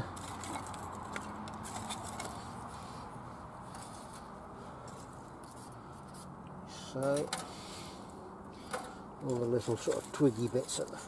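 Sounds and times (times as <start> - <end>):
twigs knocking against metal: 0.0 - 2.8, 8.6 - 11.0.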